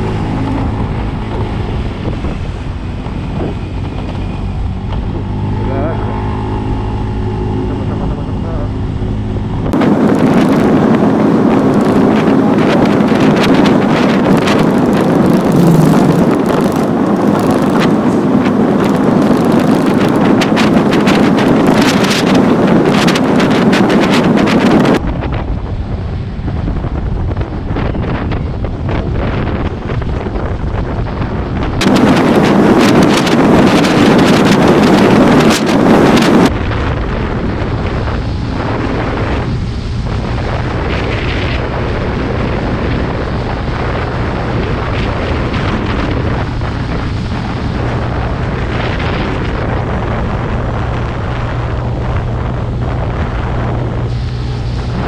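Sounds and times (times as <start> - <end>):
low engine hum: 0.0 - 55.0
wind rushing over microphone: 0.0 - 55.0.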